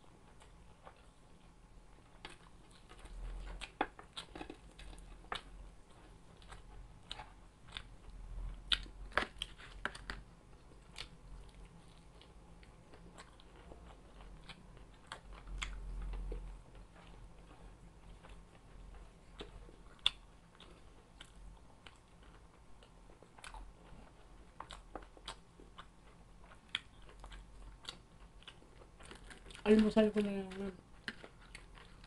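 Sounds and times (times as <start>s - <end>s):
person chewing crunchy food: 0.2s - 32.0s.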